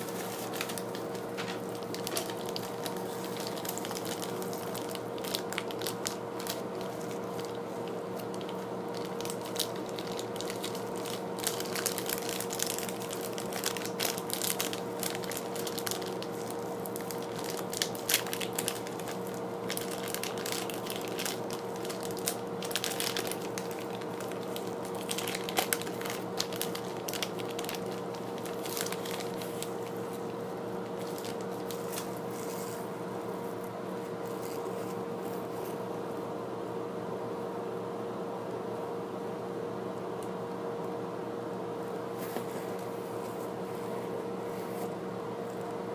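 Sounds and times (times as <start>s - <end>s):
plastic bag crinkling: 0.0s - 35.8s
steady background hum: 0.0s - 45.9s.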